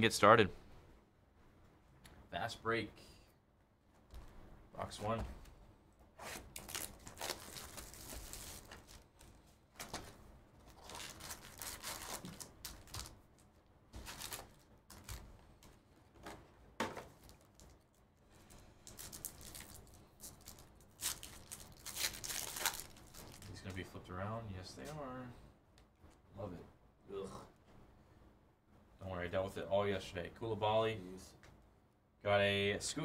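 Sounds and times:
card packs being torn open: 0:06.3 - 0:09.9, 0:10.7 - 0:13.2, 0:14.0 - 0:15.3, 0:18.8 - 0:23.5.

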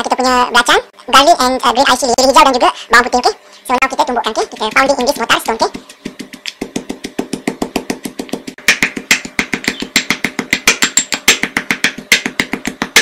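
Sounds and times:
stone pestle pounding in mortar: 0:04.5 - 0:13.0.

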